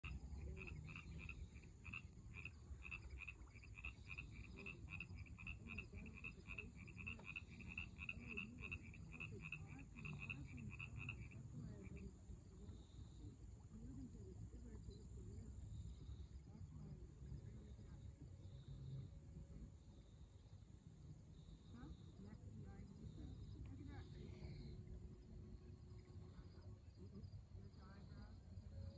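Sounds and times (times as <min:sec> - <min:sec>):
frog croaking: 0:00.0 - 0:28.9.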